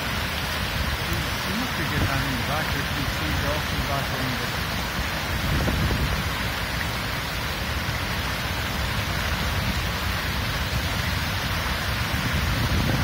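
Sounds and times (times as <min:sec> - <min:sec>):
wind buffeting microphone: 0:05.2 - 0:06.6, 0:11.8 - 0:13.0.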